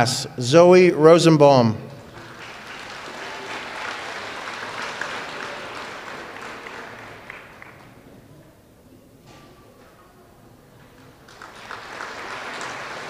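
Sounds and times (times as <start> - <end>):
audience applauding: 2.0 - 8.1, 10.8 - 13.0.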